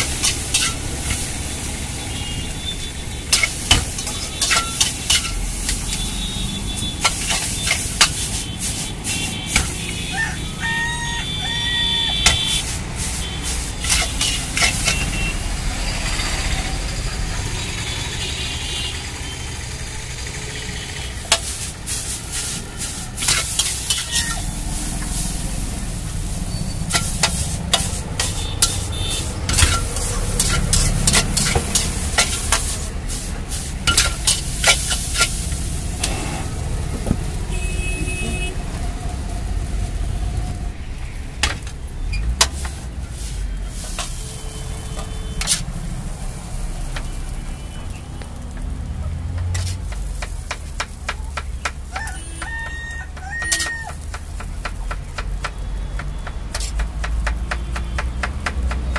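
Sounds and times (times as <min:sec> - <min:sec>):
noodles sizzling in wok: 0:00.0 - 0:58.9
metal spatula clanking on wok: 0:00.1 - 0:01.2, 0:03.3 - 0:05.9, 0:13.8 - 0:15.0, 0:23.2 - 0:24.5, 0:26.8 - 0:28.9, 0:29.5 - 0:32.8, 0:33.9 - 0:35.4.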